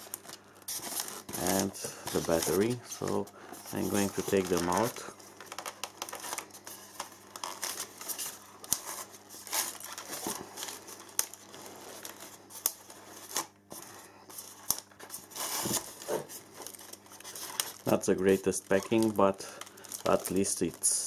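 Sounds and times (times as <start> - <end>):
polystyrene foam squeaking: 0.0 - 13.5, 15.2 - 21.0.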